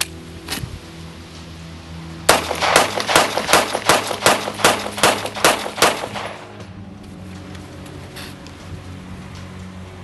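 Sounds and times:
pistol shots rapid: 0:02.3 - 0:06.5.

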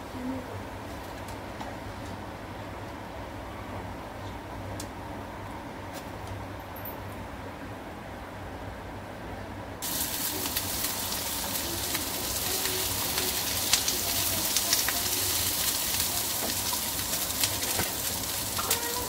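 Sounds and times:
oil crackling: 0:09.8 - 0:19.0
vegetables sizzling in oil: 0:09.8 - 0:19.0.

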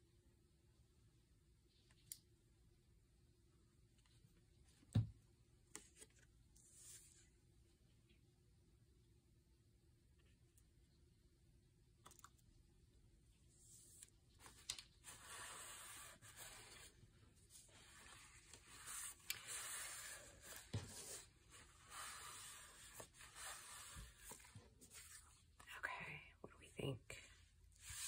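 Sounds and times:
paper rubbing and rustling: 0:13.8 - 0:25.5.

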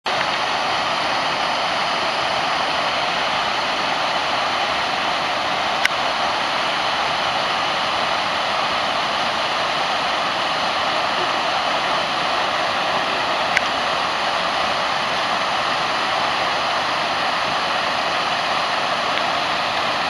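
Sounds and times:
waterfall rushing into pond: 0:00.1 - 0:20.0.

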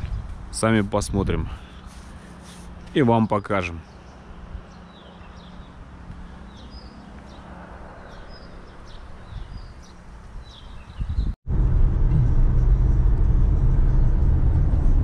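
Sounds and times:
wind rumble on microphone: 0:00.0 - 0:01.6, 0:07.9 - 0:15.0
small songbirds chirping: 0:01.6 - 0:11.4.

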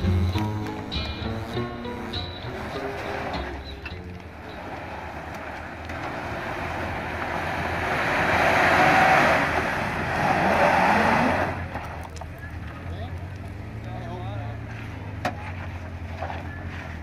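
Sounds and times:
engine revving under load: 0:00.0 - 0:17.0.

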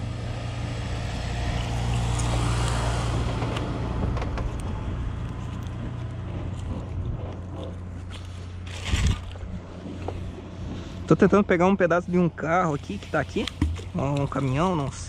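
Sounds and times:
vehicle engine passing: 0:00.0 - 0:08.7.

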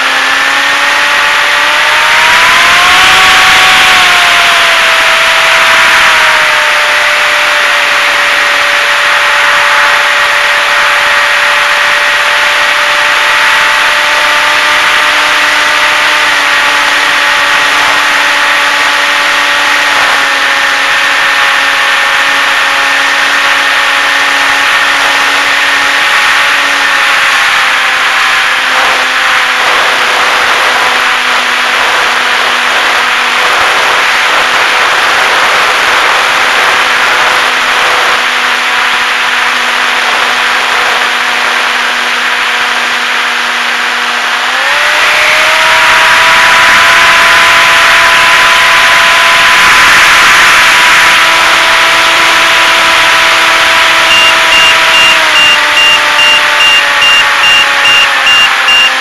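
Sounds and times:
electric motor and propeller whining: 0:00.0 - 0:59.0
wind rush: 0:24.4 - 0:42.9.

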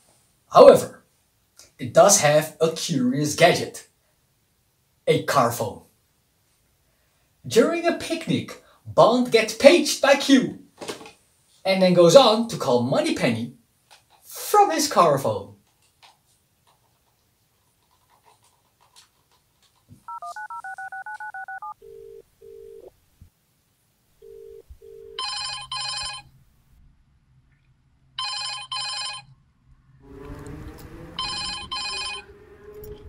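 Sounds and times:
ringing tone down phone line: 0:20.1 - 0:22.9, 0:24.2 - 0:26.3, 0:28.2 - 0:29.3, 0:31.2 - 0:32.3
telephone ringing: 0:20.1 - 0:22.9, 0:24.2 - 0:26.4, 0:28.2 - 0:29.3, 0:31.2 - 0:32.3
warbling high and low beeps: 0:31.2 - 0:32.3.

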